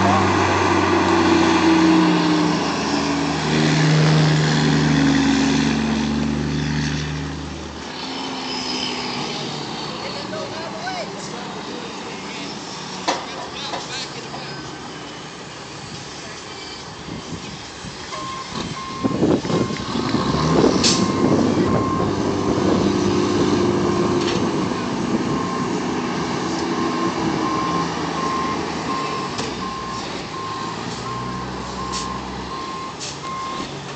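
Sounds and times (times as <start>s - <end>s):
diesel truck engine running: 0.0s - 8.0s, 13.6s - 33.9s
reversing alarm beeps: 18.1s - 19.8s, 26.8s - 33.6s.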